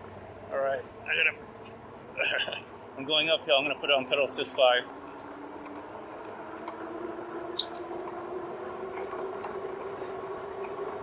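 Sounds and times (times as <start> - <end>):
electric bike motor whining: 4.9 - 11.0.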